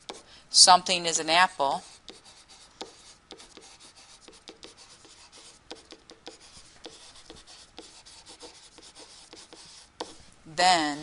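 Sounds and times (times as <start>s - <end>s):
stylus scratching on tablet: 1.5s - 10.3s.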